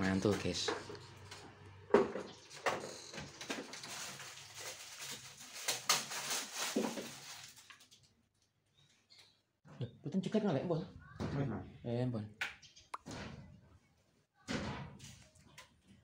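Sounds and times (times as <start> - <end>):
rustling: 2.8 - 8.0.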